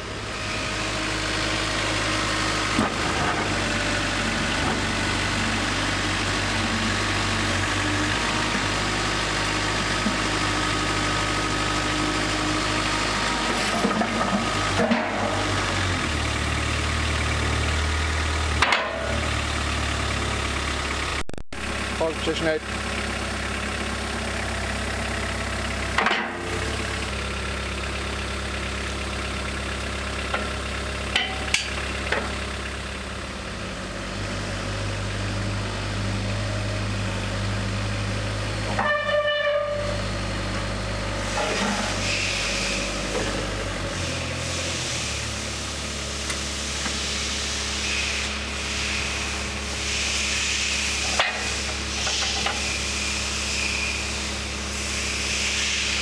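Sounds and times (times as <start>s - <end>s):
lift truck engine humming: 0.0s - 56.0s
short horn-like tone: 38.8s - 40.0s
hiss: 42.0s - 42.9s, 46.7s - 56.0s.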